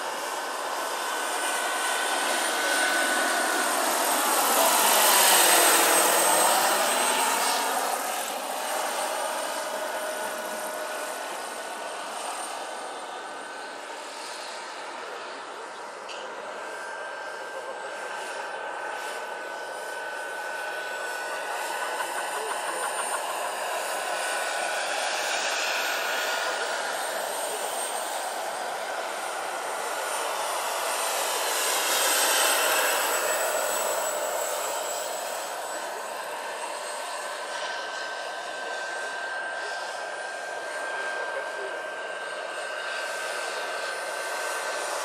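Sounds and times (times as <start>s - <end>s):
model helicopter turbine whine: 0.0s - 45.0s.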